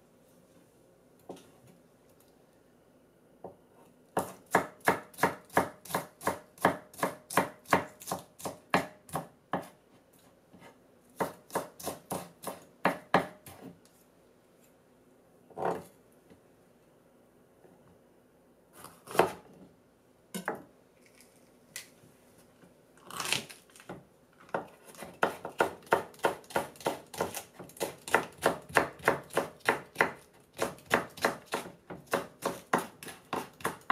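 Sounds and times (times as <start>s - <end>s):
knife chopping on cutting board: 4.2s - 9.8s, 11.2s - 13.7s, 19.0s - 19.4s, 24.5s - 33.9s.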